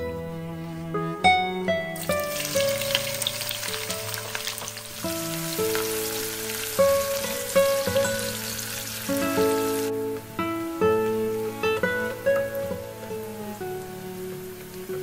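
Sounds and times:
plucked acoustic guitar music: 1.0s - 15.0s
onions sizzling in hot oil: 2.0s - 9.9s.

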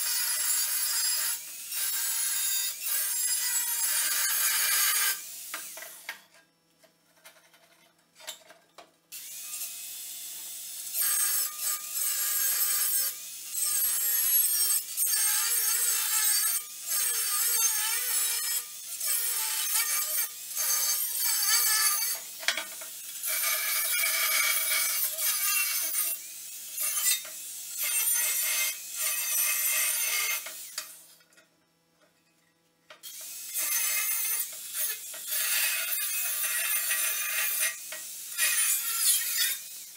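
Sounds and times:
angle grinder cutting steel: 9.2s - 31.1s, 33.0s - 39.9s.

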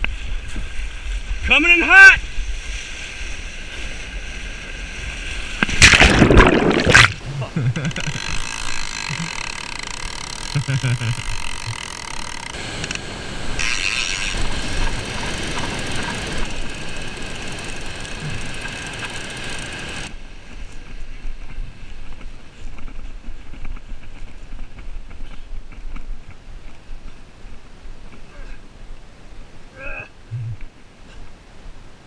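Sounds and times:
fishing reel whirring: 8.0s - 20.1s.

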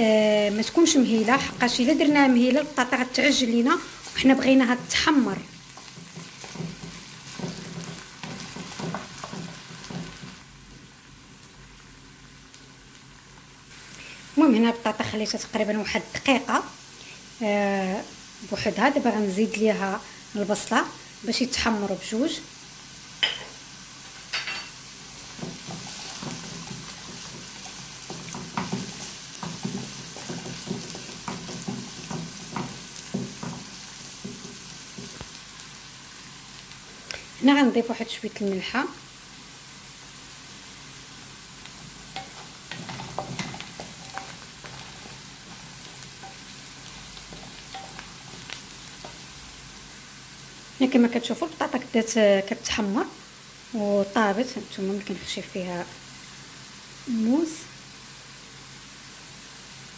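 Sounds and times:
potatoes sizzling in oil: 0.0s - 59.9s
wooden spatula scraping pan: 5.7s - 10.4s, 25.3s - 35.2s.

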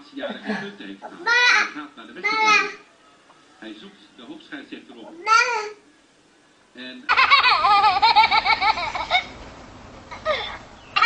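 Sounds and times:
baby laughing: 7.1s - 9.3s, 10.1s - 11.0s.

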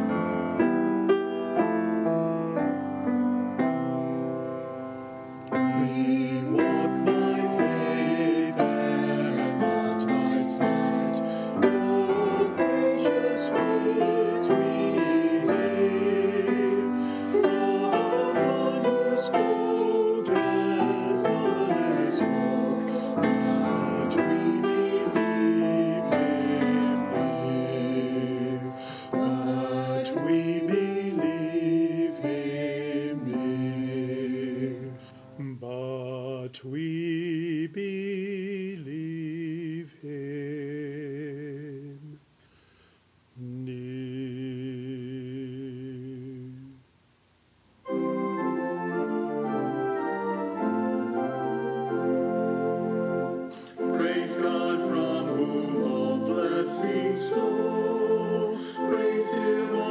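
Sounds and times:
organ music: 0.0s - 35.5s, 47.8s - 59.9s.

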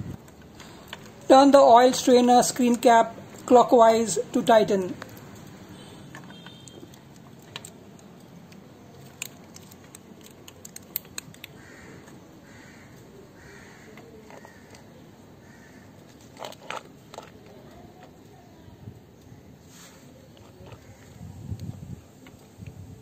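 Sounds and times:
metallic clicks and scrapes: 5.0s - 11.6s, 16.1s - 18.2s.

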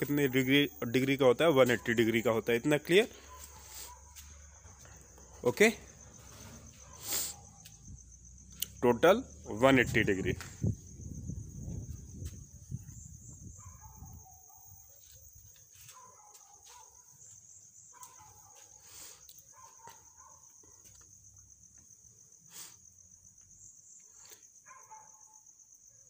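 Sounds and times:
faint distant animal calls: 0.0s - 7.9s
crickets chirping: 0.0s - 26.0s.

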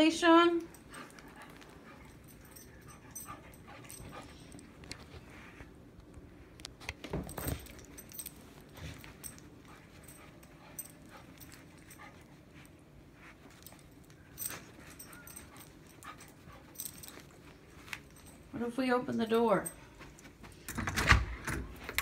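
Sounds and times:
metal collar tag jingling: 0.4s - 4.8s, 7.2s - 12.7s, 13.3s - 18.6s.

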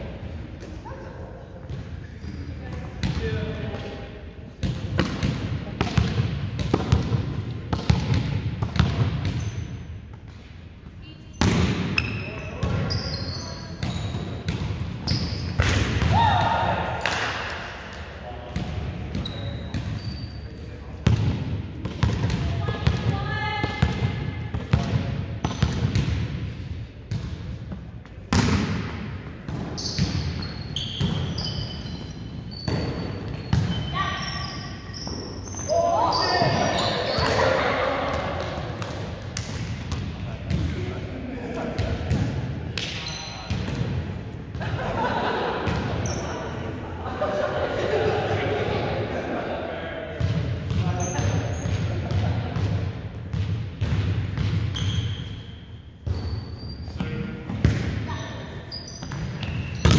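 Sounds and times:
volleyball being hit and bouncing: 4.6s - 9.4s, 11.4s - 12.9s, 13.8s - 20.0s, 21.0s - 33.9s, 50.2s - 55.2s, 56.0s - 58.1s, 59.0s - 59.9s
volleyball smacks: 15.6s - 17.6s, 28.3s - 28.8s
high squeaks: 29.8s - 37.4s.

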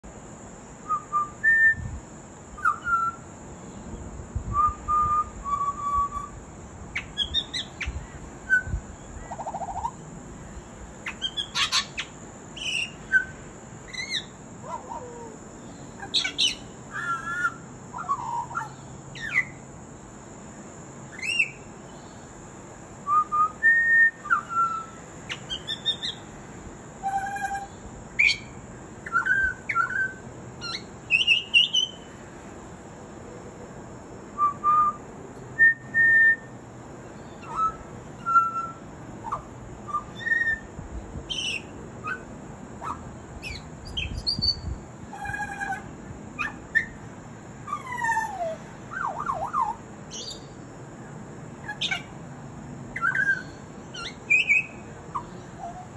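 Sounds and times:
bird singing whistled notes: 0.8s - 3.3s, 4.5s - 6.4s, 7.0s - 10.0s, 11.1s - 15.0s, 15.6s - 19.6s, 21.1s - 22.2s, 23.0s - 26.2s, 27.0s - 32.1s, 34.4s - 35.0s, 35.6s - 36.6s, 37.2s - 40.7s, 41.3s - 45.8s, 47.7s - 50.6s, 52.9s - 55.9s.

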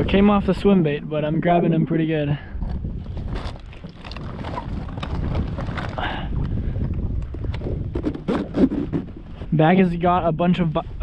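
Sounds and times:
wind buffeting microphone: 0.0s - 11.0s
insulated bag rustling and clicking: 3.2s - 6.1s.

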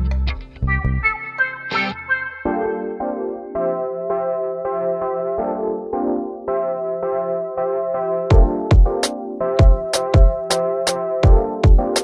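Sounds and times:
keyboard chords: 0.0s - 12.0s.

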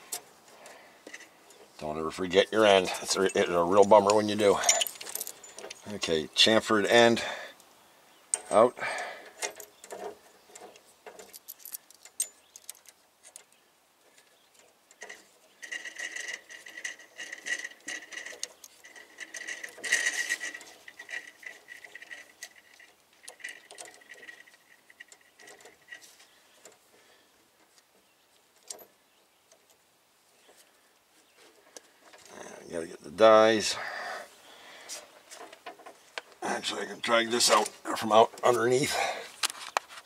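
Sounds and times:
metal tools clinking and scraping: 2.6s - 6.2s, 9.4s - 13.5s, 15.0s - 27.1s, 36.6s - 39.8s.

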